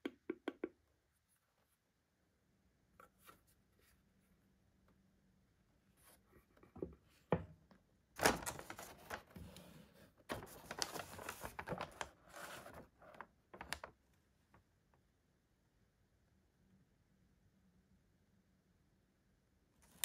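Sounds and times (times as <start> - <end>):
paper rustling and crinkling: 8.2 - 14.0.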